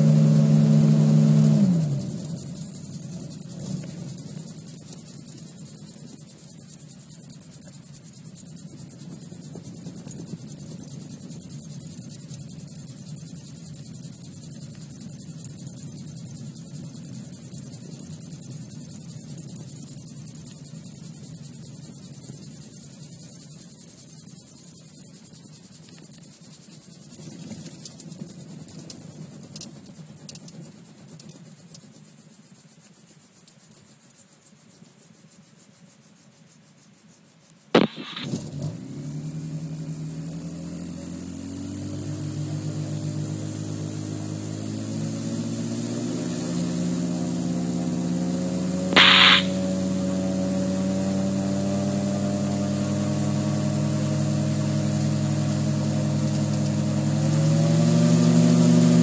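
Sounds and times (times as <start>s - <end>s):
aircraft engine revving up: 0.0s - 5.1s, 37.8s - 59.0s
sharp click: 37.8s - 38.3s, 49.0s - 49.6s
faint hum: 49.0s - 49.7s
high-pitched burst: 49.0s - 49.7s.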